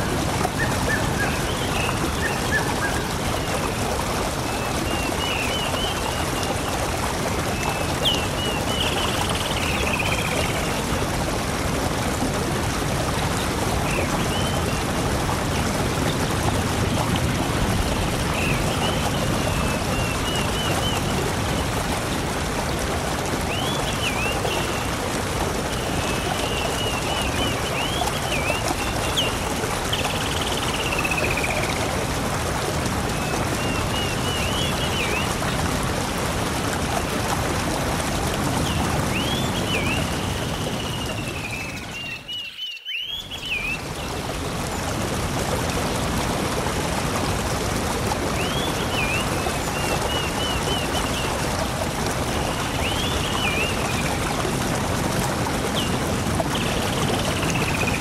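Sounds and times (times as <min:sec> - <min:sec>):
rush of flowing water: 0:00.0 - 0:58.0
birds chirping: 0:38.6 - 0:44.1.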